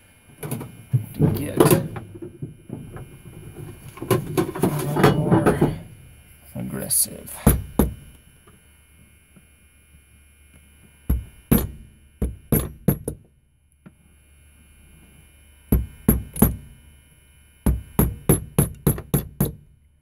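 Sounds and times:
small hammer tapping metal: 11.1s - 13.2s.

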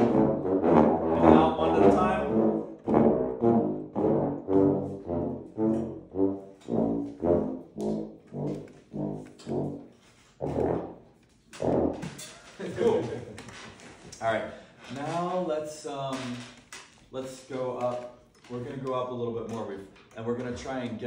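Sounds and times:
french horns playing short notes: 0.0s - 11.0s.

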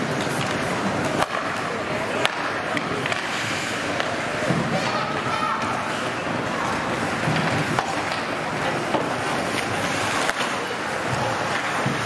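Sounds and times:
stick hitting puck: 0.1s - 5.0s, 6.6s - 12.0s
skate blades scraping ice: 3.0s - 12.0s.

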